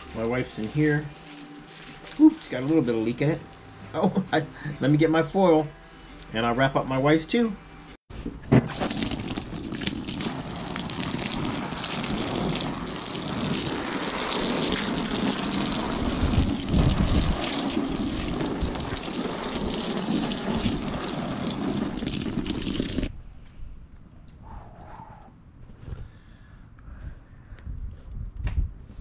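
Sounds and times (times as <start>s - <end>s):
hose spraying water on canvas: 8.7s - 23.1s.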